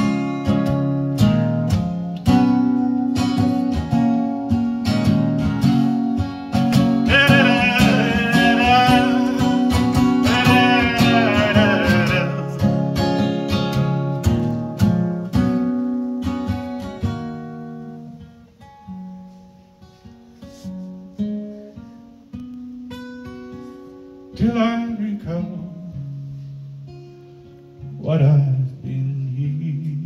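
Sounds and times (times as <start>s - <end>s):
acoustic guitar strumming: 0.0s - 30.0s
person singing wordless line: 7.1s - 12.9s.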